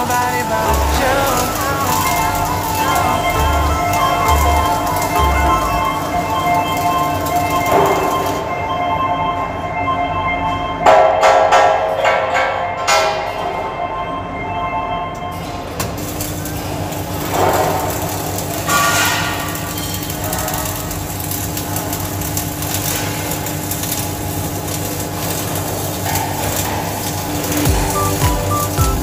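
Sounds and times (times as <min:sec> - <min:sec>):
welding arc crackling: 0:00.0 - 0:08.6, 0:15.4 - 0:29.0.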